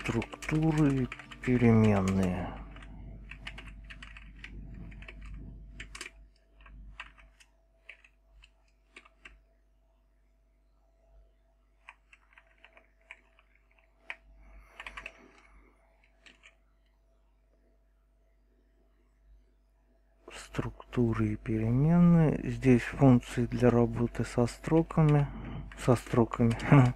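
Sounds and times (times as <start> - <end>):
computer keyboard typing: 0.0 - 9.4, 11.8 - 16.6, 23.4 - 26.9.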